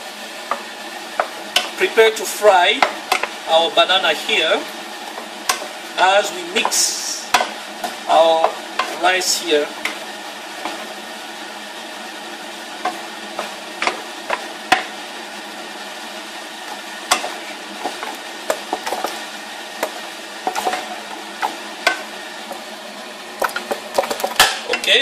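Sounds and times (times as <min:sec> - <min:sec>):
rice sizzling in a frying pan: 0:00.0 - 0:25.0
spatula knocking against pan: 0:06.6 - 0:07.6, 0:17.1 - 0:19.2, 0:19.8 - 0:22.1.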